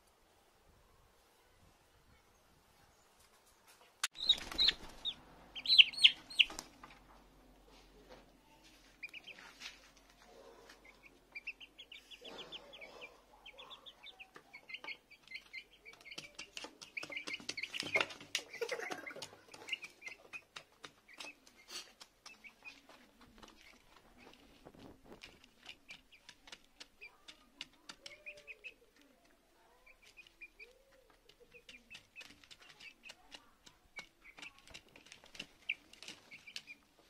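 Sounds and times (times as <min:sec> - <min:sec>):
young chickens clucking: 0:03.2 - 0:37.0
beaks pecking plastic bowl: 0:04.0 - 0:06.9, 0:13.8 - 0:24.5, 0:25.2 - 0:37.0.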